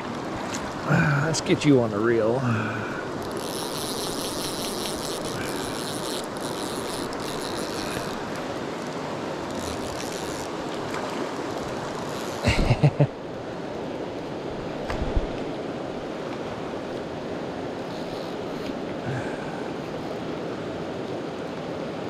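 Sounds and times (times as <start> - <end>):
river rushing: 0.0 - 22.0
fly reel clicking: 3.1 - 12.5, 17.8 - 18.8.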